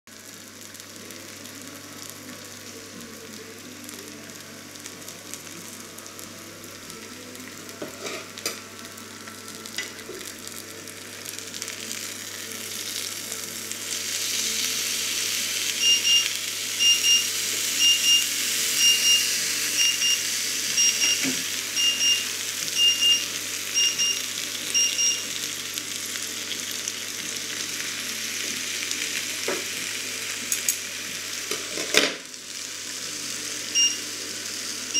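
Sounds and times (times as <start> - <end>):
meat sizzling on a grill pan: 0.1 - 34.9
high electronic beep: 15.8 - 25.3, 33.8 - 34.0.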